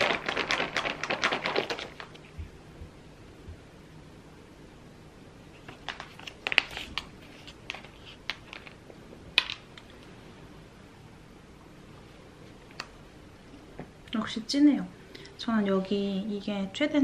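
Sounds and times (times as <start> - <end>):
food packaging crinkling: 0.0 - 2.3, 5.6 - 8.8.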